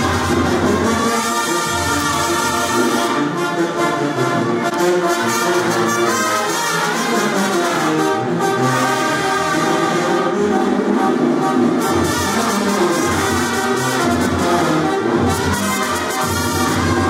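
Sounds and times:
brass horns playing: 0:00.0 - 0:17.0.

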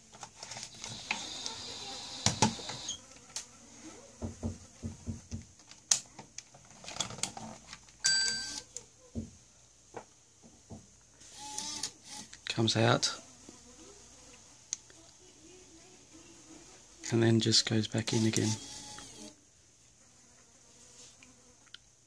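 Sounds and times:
eject mechanism whining: 0:00.7 - 0:03.0.

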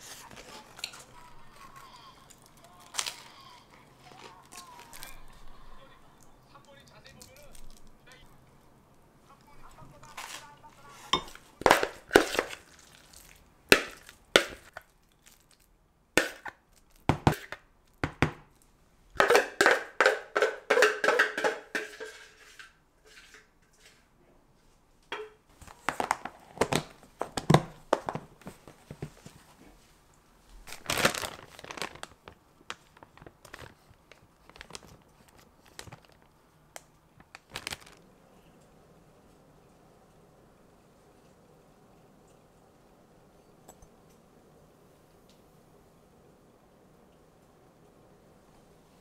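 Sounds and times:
plastic crinkling: 0:00.0 - 0:18.0, 0:25.5 - 0:29.8, 0:30.5 - 0:38.6
spoon scraping bowl: 0:10.9 - 0:13.0, 0:19.2 - 0:24.1.

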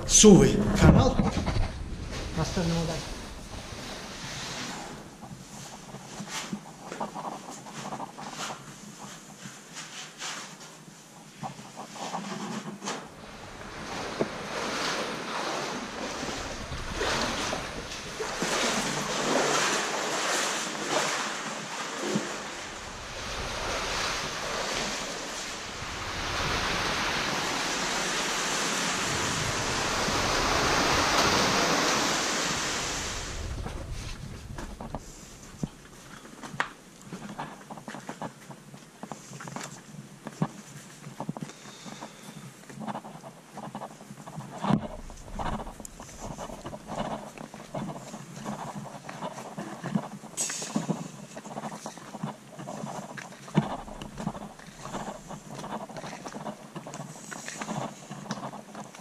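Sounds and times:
water sloshing and knocks: 0:12.8 - 0:38.4, 0:44.4 - 0:59.0
rushing water: 0:13.1 - 0:36.2, 0:50.2 - 0:59.0
person wading through stream: 0:13.2 - 0:33.8, 0:50.2 - 0:58.8.

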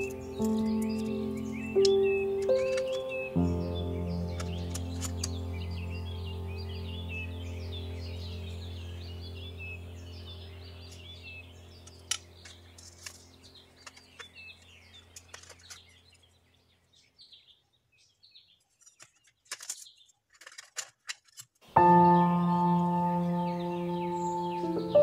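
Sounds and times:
soft background music: 0:00.0 - 0:11.2, 0:21.8 - 0:25.0
bird chirps: 0:00.0 - 0:20.2, 0:21.7 - 0:25.0.

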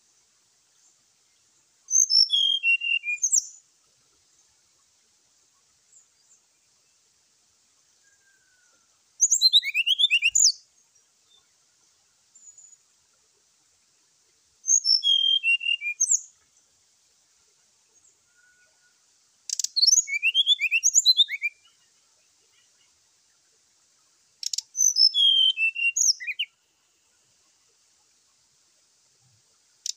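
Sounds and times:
bird whistled song: 0:01.9 - 0:03.6, 0:08.0 - 0:10.6, 0:14.6 - 0:16.3, 0:19.5 - 0:21.8, 0:24.4 - 0:26.6.

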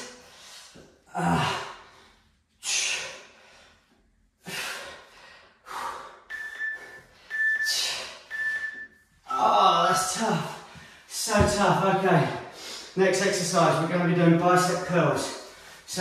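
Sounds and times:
man breathing hard: 0:00.0 - 0:08.7, 0:10.4 - 0:11.1, 0:12.4 - 0:13.0
short high timer beeps: 0:06.3 - 0:10.0.

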